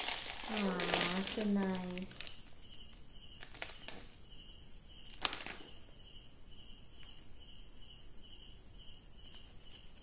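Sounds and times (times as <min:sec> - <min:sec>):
plastic packaging crinkling: 0:00.0 - 0:02.5, 0:03.4 - 0:04.1, 0:05.1 - 0:05.8
cricket chirping: 0:00.0 - 0:10.0.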